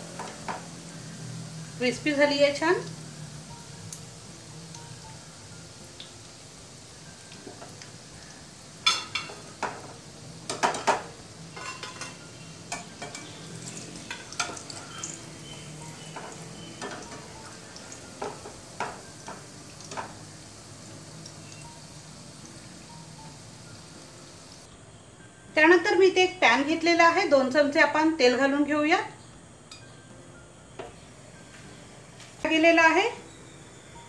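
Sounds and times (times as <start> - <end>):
food sizzling in hot oil: 0.0 - 24.7, 30.9 - 34.0
metal spoon scraping a pan: 11.5 - 15.0.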